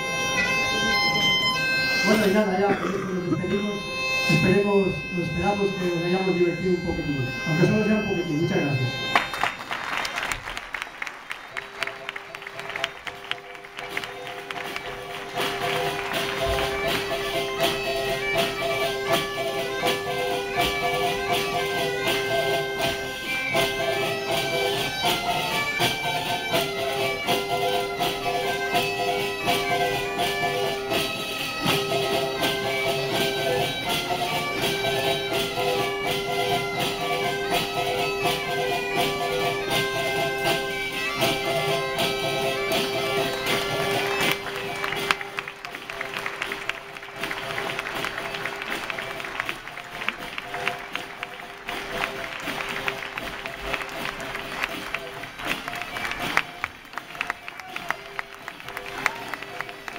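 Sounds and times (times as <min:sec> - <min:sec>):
bagpipe tune with drone: 0:00.0 - 0:09.7, 0:11.6 - 0:59.9
frame drums beating a rhythm: 0:00.0 - 0:59.9.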